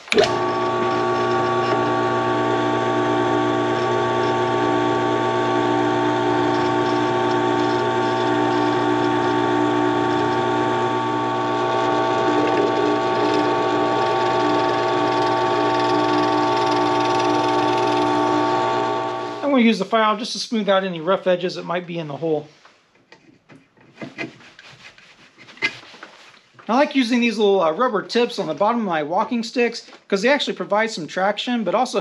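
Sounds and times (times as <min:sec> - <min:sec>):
drill press motor whine and hum: 0:00.1 - 0:19.5.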